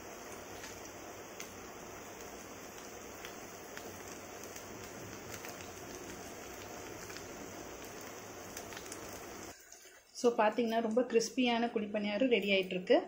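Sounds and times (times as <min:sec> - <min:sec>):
small crackles: 0:00.0 - 0:10.2
oil sizzling in a pan: 0:00.0 - 0:11.4.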